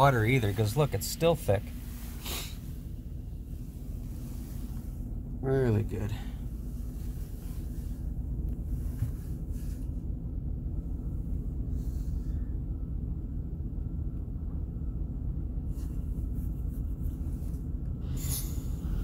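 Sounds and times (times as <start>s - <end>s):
car wash rumble: 0.0s - 12.4s.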